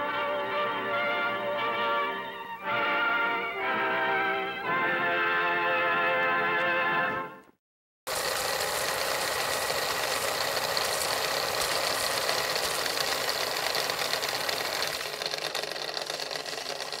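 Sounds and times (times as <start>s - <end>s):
film projector clatter and whir: 8.1s - 17.0s.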